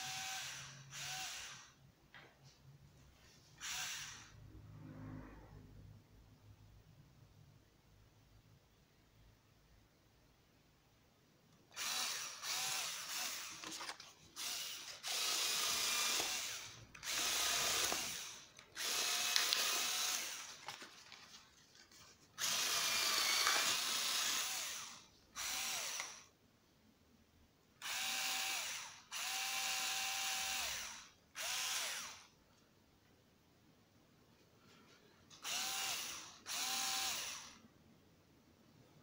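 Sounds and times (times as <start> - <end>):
cordless screwdriver motor whine: 0.0 - 1.7, 3.6 - 4.2, 11.8 - 13.7, 14.4 - 20.5, 22.4 - 26.3, 27.8 - 32.2, 35.4 - 37.6.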